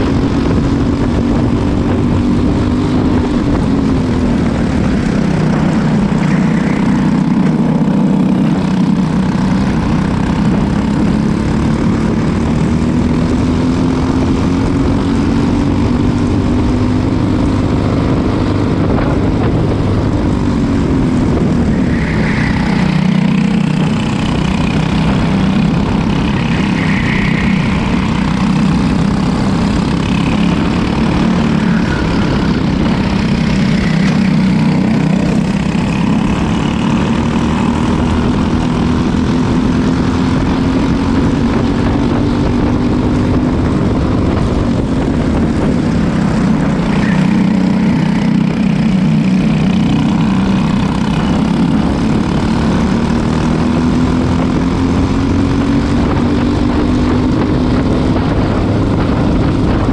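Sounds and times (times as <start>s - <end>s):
go-kart engines racing: 0.0s - 59.9s
wind and tyre noise: 0.0s - 59.9s.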